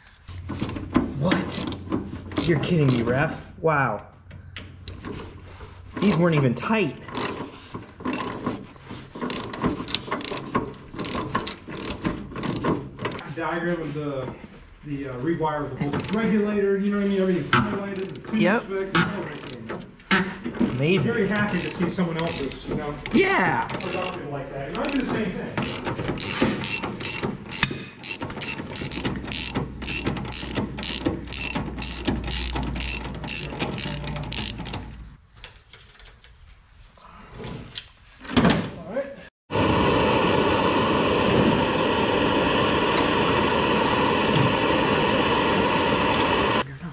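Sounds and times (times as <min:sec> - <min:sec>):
ratchet wrench clicking: 0:01.6 - 0:03.1, 0:07.1 - 0:07.4, 0:08.1 - 0:08.4, 0:09.3 - 0:13.2, 0:20.6 - 0:22.6, 0:23.8 - 0:24.2, 0:24.8 - 0:35.0.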